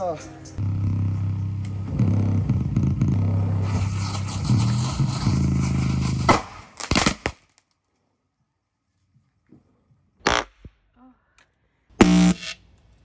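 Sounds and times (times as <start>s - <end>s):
speaker popping and crackling: 10.2s - 10.8s
bass-heavy music from overdriven speaker: 12.0s - 12.5s.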